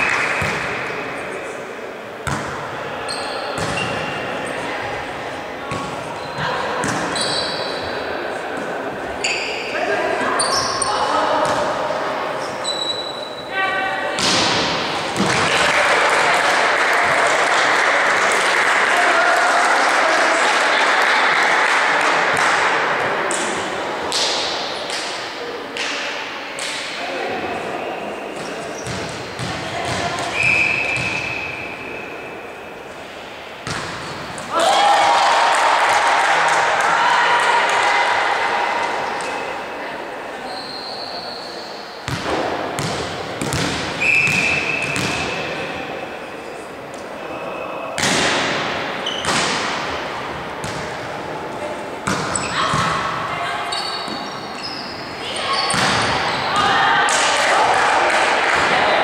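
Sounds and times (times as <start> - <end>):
volleyball thudding in gym: 0.2 - 1.0, 2.2 - 2.7, 3.5 - 4.2, 5.6 - 7.2, 14.2 - 15.8, 33.6 - 35.0, 42.0 - 45.6, 48.0 - 51.0, 52.0 - 53.2, 55.7 - 57.3
applause in a large hall: 15.6 - 22.1.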